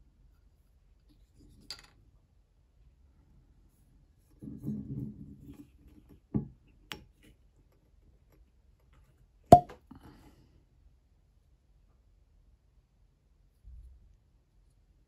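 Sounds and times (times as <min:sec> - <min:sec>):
cork popping: 0:09.5 - 0:09.8.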